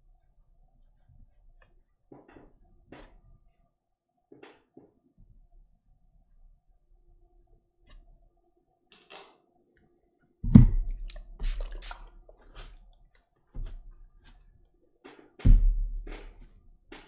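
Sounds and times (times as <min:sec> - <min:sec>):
dull thumps on a board: 0:10.4 - 0:11.1, 0:15.4 - 0:17.0.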